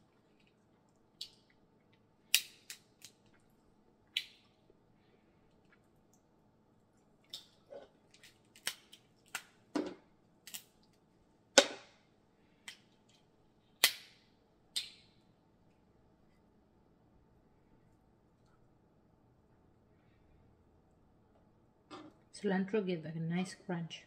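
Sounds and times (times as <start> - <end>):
crab shells cracking: 2.2 - 3.4, 7.2 - 9.6, 10.4 - 11.0.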